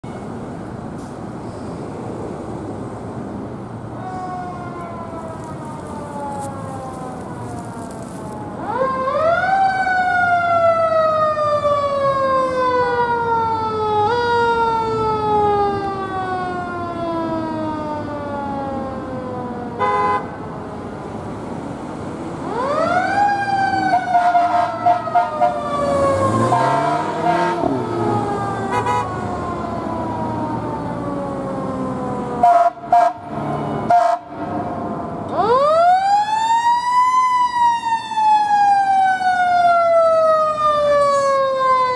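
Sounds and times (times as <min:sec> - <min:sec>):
traffic noise: 0:00.0 - 0:41.9
horn blast: 0:28.7 - 0:29.1.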